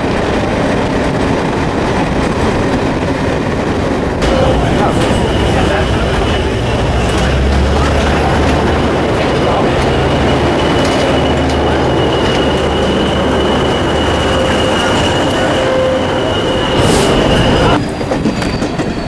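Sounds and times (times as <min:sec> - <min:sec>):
diesel locomotive engine rumble: 0:00.0 - 0:19.0
high-pitched whine: 0:04.2 - 0:17.9.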